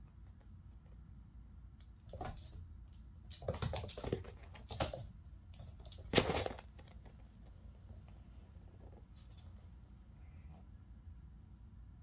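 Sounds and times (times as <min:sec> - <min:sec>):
kittens' paws scampering on floor: 0:01.7 - 0:09.9.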